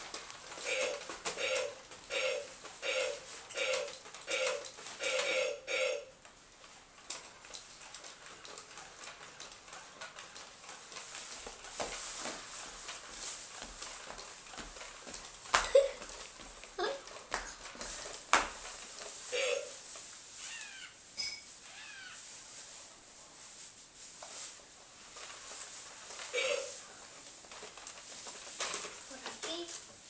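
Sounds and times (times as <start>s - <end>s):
toy robot electronic blips: 0.7s - 6.0s.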